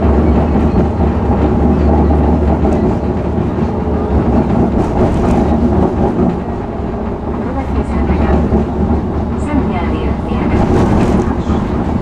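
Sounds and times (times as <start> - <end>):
tram motor hum: 0.0 - 12.0
tram wheels rumbling on rails: 0.0 - 12.0.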